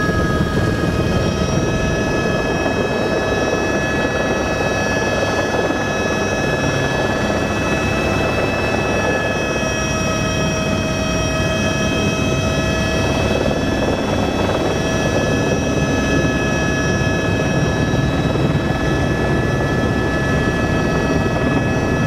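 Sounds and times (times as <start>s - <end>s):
helicopter engine and rotor rumble: 0.0s - 22.0s.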